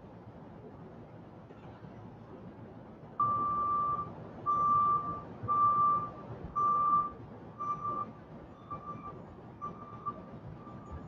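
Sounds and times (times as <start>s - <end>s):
faint city traffic hum: 0.0s - 11.0s
vehicle reversing alarm beeping: 3.2s - 11.0s.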